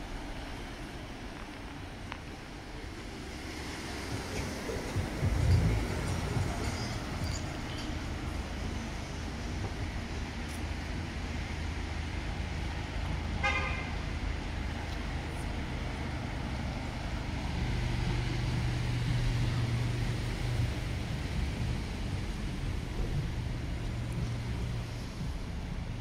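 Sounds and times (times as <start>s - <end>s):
street traffic: 0.0s - 26.0s
vehicle engine drone: 0.0s - 26.0s
vehicle horn toot: 13.4s - 14.0s.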